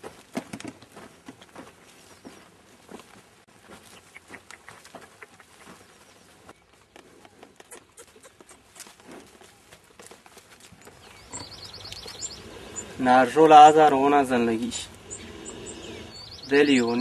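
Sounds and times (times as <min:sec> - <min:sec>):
oxen footfalls on soil: 0:00.0 - 0:11.6.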